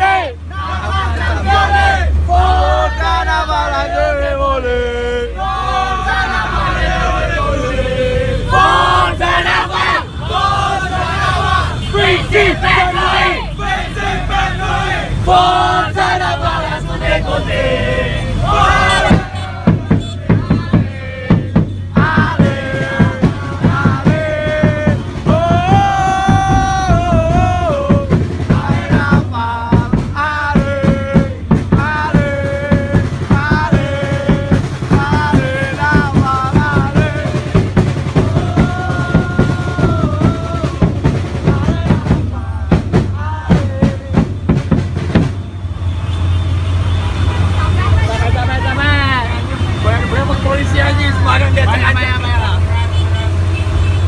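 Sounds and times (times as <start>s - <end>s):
steady drum beat: 18.4s - 45.8s.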